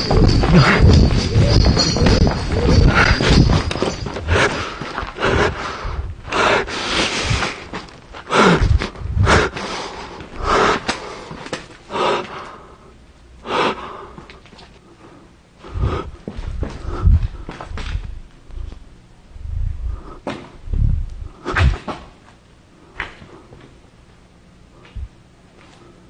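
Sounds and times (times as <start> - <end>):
footsteps: 0.0 - 6.4
heavy gasping breaths: 0.0 - 18.0.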